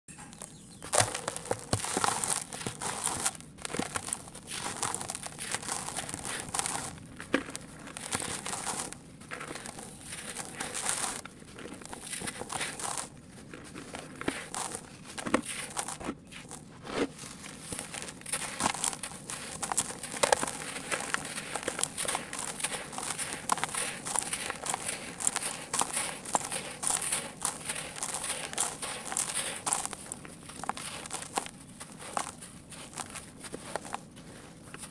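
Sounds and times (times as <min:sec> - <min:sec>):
hands crumbling dry sand: 0:00.2 - 0:34.9
sand grains falling: 0:17.8 - 0:34.0.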